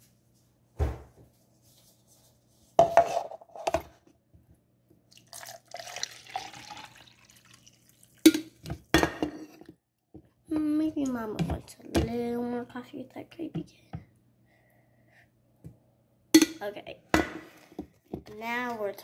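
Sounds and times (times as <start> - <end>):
coffee pouring into cup: 5.1 - 8.6.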